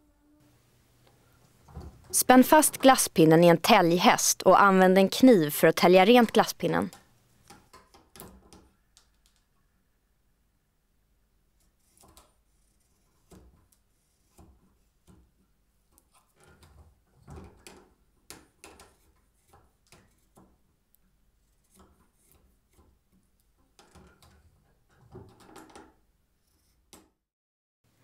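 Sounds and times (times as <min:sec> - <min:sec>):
knife shaving wood: 0:11.6 - 0:13.4.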